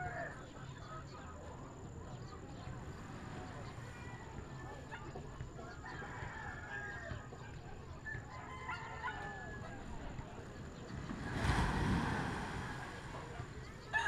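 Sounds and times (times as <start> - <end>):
rush of noise: 11.2 - 13.6.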